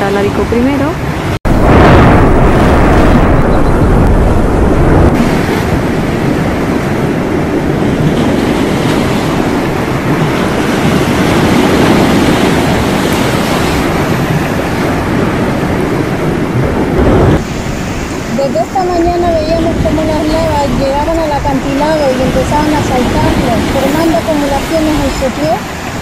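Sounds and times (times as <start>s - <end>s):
lava pouring into sea rushing: 1.5s - 15.6s.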